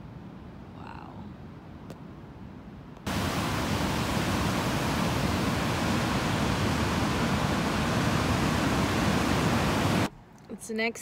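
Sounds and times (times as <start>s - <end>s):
ocean surf: 3.1s - 10.1s.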